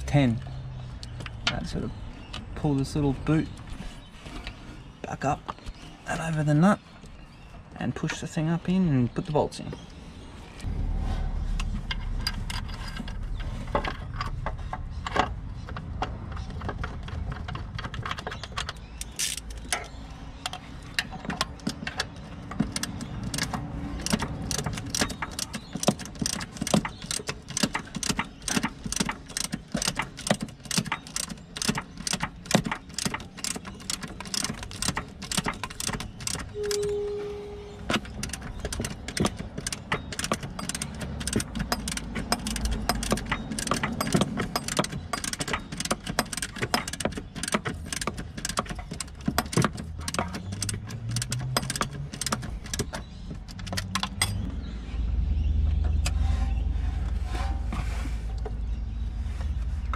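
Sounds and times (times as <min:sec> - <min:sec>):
short steady tone: 0:36.6 - 0:37.8.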